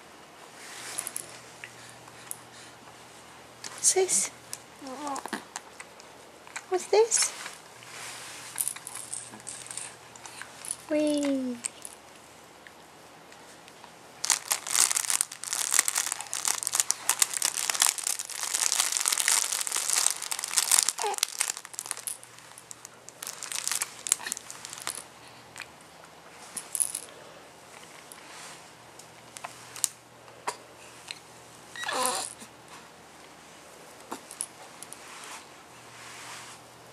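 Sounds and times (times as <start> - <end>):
crinkle fabric rustling: 7.2 - 9.9, 14.2 - 25.1
baby squeaking: 21.0 - 21.4, 31.8 - 32.3.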